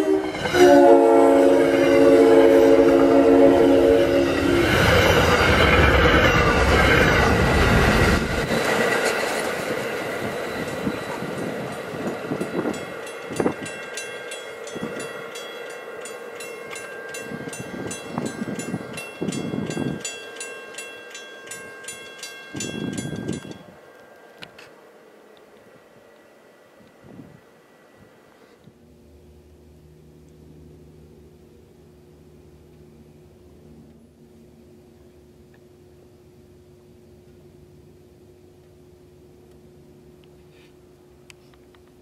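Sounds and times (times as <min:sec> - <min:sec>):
train horn blast: 0:00.0 - 0:05.1
train wheel and rail noise: 0:00.0 - 0:42.0
crossing bell dinging: 0:09.1 - 0:24.9.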